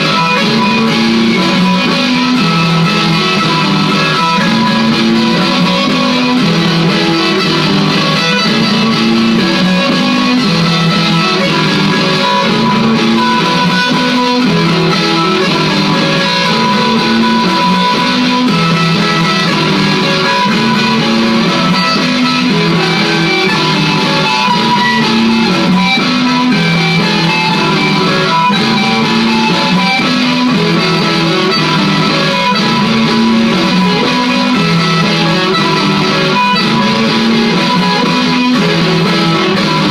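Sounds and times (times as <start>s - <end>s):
looped electric guitar: 0.0s - 39.9s.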